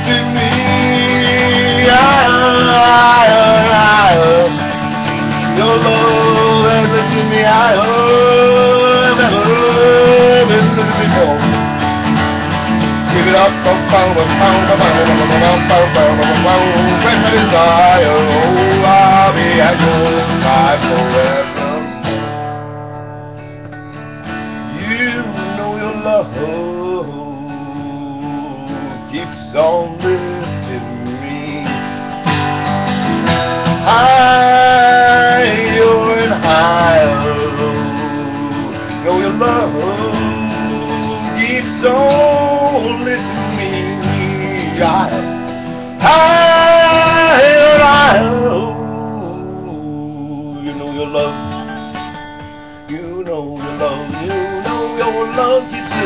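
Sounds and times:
person singing: 0.0 - 11.7, 13.0 - 22.1, 24.7 - 32.2, 33.7 - 52.2, 52.9 - 56.0
acoustic guitar strumming: 0.0 - 56.0.

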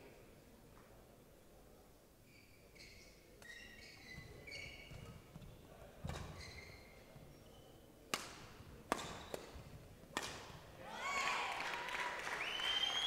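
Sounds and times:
shoes squeaking on court: 2.3 - 7.9, 8.5 - 9.8
rackets striking shuttlecock: 8.1 - 10.6.

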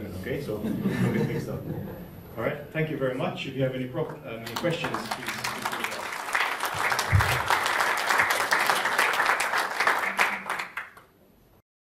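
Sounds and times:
audience applauding: 4.4 - 11.1.

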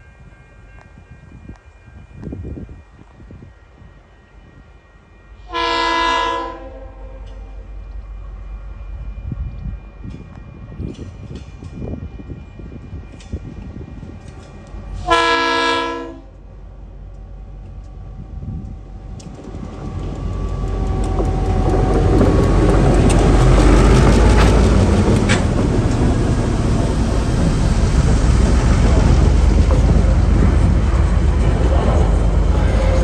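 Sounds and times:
train horn blast: 5.4 - 7.7, 15.0 - 16.4, 32.5 - 33.0
diesel locomotive rumble: 12.8 - 33.0
wheels clicking on rails: 18.6 - 33.0.

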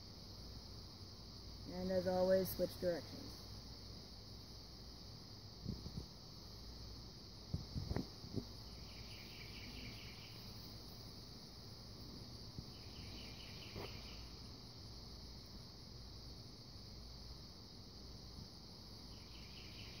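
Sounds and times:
insects chirring: 0.0 - 20.0.

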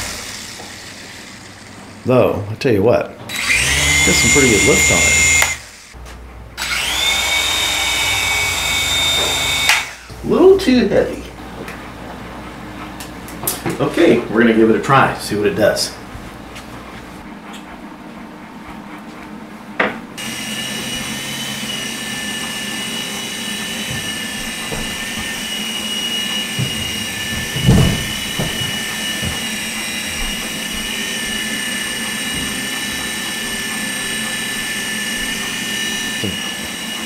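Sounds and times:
toy helicopter rotor whining: 0.0 - 2.2, 3.3 - 6.0, 6.6 - 10.1, 20.2 - 37.0.

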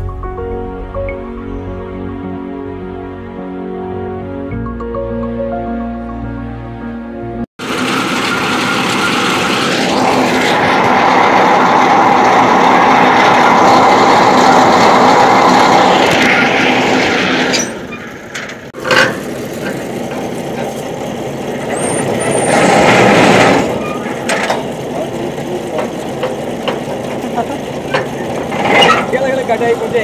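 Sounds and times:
truck engine running under load: 7.6 - 30.0.

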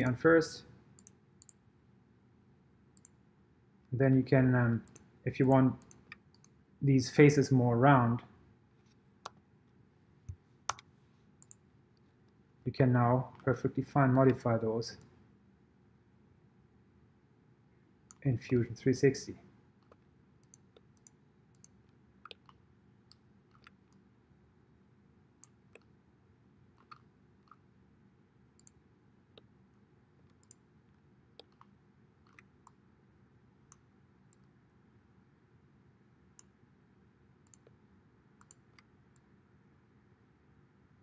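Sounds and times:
computer mouse clicks: 1.0 - 1.6, 3.0 - 3.2, 4.8 - 6.6, 10.2 - 11.6, 19.8 - 24.0, 26.8 - 27.6, 28.6 - 29.5, 30.2 - 30.6, 31.3 - 32.8, 33.7 - 34.5, 37.4 - 37.8, 38.4 - 39.3.

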